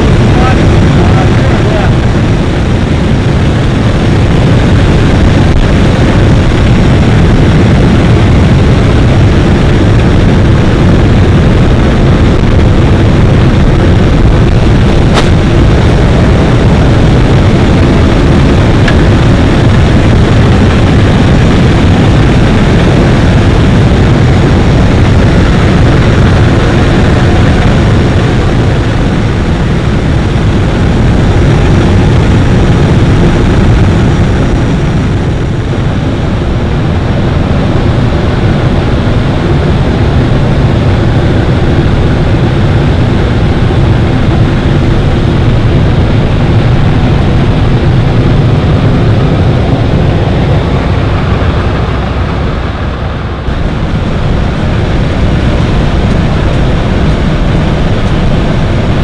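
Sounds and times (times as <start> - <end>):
aircraft engines running: 0.0 - 59.0
air rushing past open door: 46.0 - 58.9.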